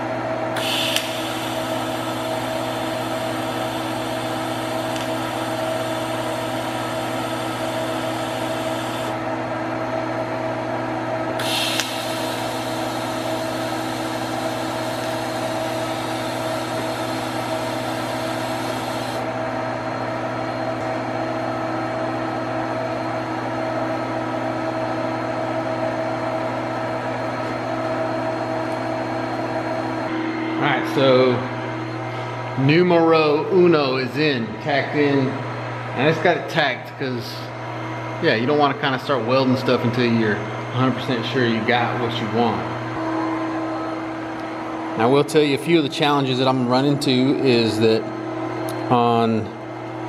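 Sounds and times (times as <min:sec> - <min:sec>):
steady mechanical hum: 0:00.0 - 0:50.0
welding arc crackle: 0:00.6 - 0:09.2, 0:11.4 - 0:19.2
welding arc hissing: 0:00.6 - 0:09.2, 0:11.4 - 0:19.3.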